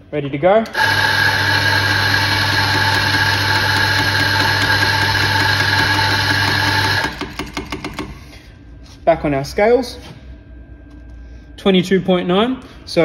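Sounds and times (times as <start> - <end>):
coffee grinder running: 0.7 - 8.0.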